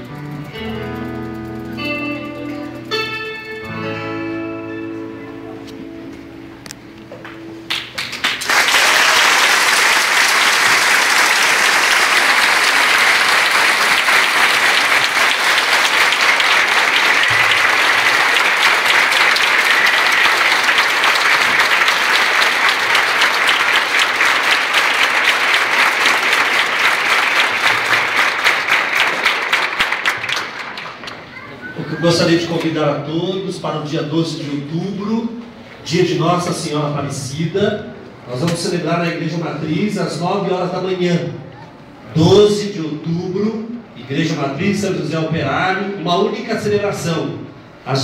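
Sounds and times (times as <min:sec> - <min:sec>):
crowd applauding: 0:07.6 - 0:32.5.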